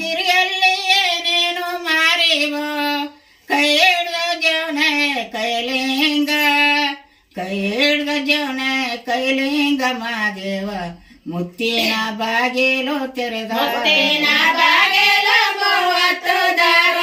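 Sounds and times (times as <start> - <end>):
women singing unaccompanied: 11.4 - 17.0.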